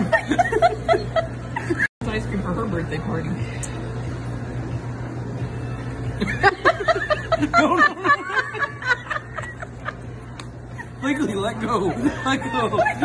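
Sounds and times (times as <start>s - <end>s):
people laughing: 0.0s - 1.9s, 6.2s - 13.0s.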